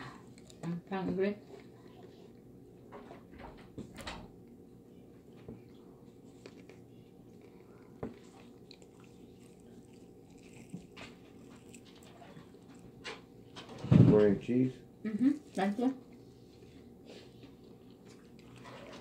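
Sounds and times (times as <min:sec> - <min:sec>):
chewing crispy chicken: 0:00.0 - 0:00.8, 0:05.6 - 0:13.7, 0:15.4 - 0:19.0
faint room hum: 0:00.0 - 0:19.0.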